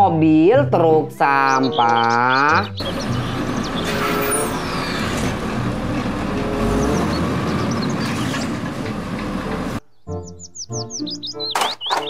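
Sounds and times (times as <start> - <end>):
hydraulics working: 1.9 - 9.8
garbage truck engine: 2.6 - 9.9.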